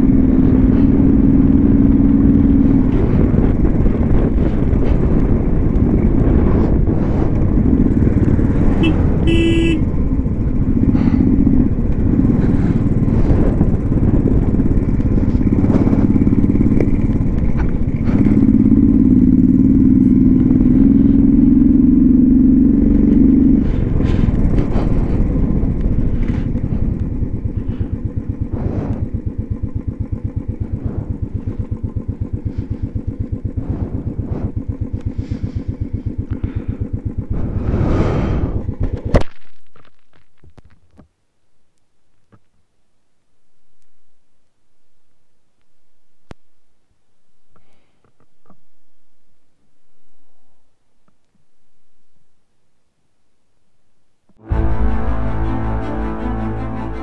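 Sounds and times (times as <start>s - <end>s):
motorcycle engine: 0.0s - 41.1s, 54.4s - 57.0s.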